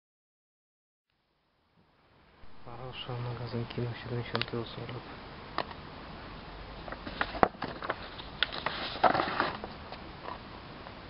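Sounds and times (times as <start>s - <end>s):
paper rustling: 6.9s - 9.8s.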